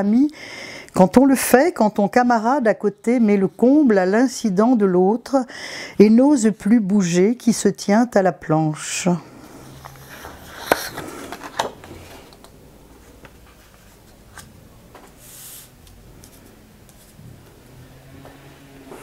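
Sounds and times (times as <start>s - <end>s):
paper sliding: 15.2s - 17.2s.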